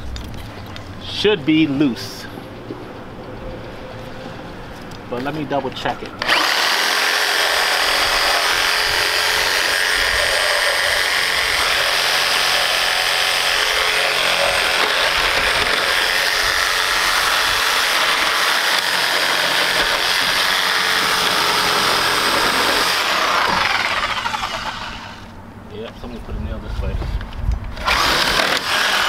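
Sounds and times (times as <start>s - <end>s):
reciprocating saw cutting wood and nails: 5.9s - 25.4s, 27.7s - 29.0s.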